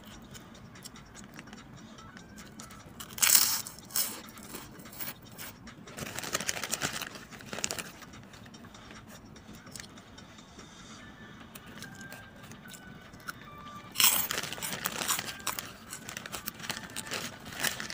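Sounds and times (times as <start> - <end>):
plastic bag crinkling: 6.0 - 8.5, 13.9 - 17.9.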